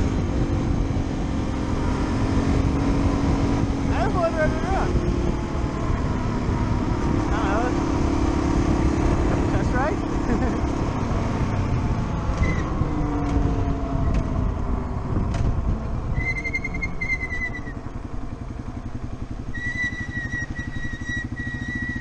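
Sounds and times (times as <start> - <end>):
motorcycle engine putting: 0.0 - 22.0
high squeal: 16.1 - 17.8, 19.5 - 22.0.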